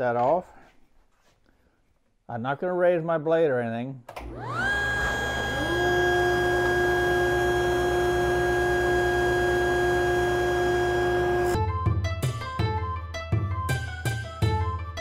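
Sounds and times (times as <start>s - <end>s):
table saw whining: 4.2s - 11.6s.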